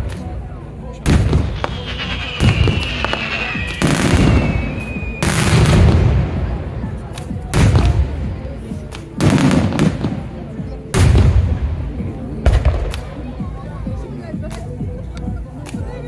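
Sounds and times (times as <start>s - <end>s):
fireworks booming: 1.0s - 13.5s
high falling whistle: 1.4s - 5.8s.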